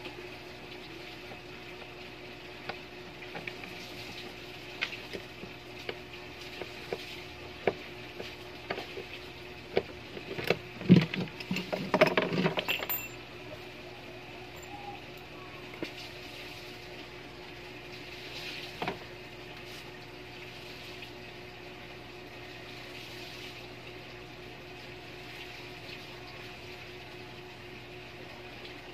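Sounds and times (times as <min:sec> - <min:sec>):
faint steady hum: 0:00.0 - 0:28.9
metal knocking and rattling: 0:10.2 - 0:13.2.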